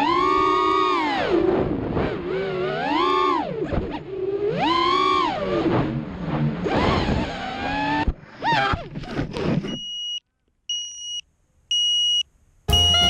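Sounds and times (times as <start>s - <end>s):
quadcopter motors whining: 0.0s - 5.8s.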